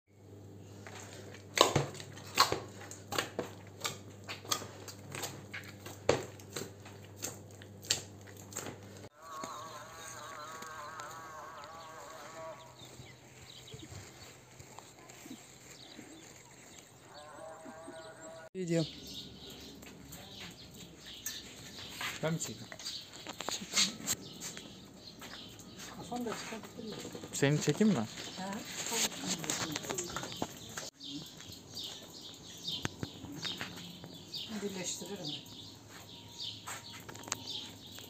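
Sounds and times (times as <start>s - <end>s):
wavering animal call: 9.1s - 14.0s, 17.1s - 18.5s.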